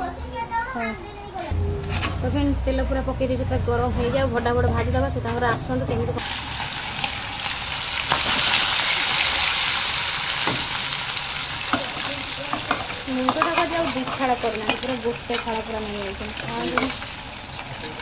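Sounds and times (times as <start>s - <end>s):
fish sizzling in hot oil: 6.2s - 18.0s.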